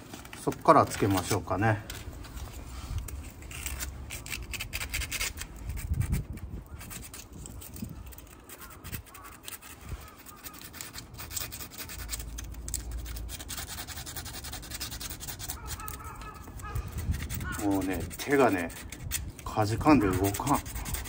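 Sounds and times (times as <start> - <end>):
sandpaper rubbing plastic: 0.0 - 21.0
wind rumble on microphone: 2.0 - 10.2, 12.0 - 21.0.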